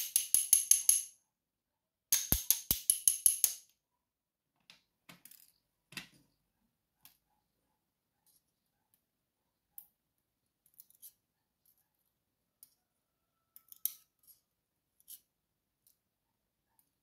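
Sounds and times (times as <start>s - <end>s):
tweezers clicking on metal: 0.0s - 1.1s, 13.6s - 14.4s.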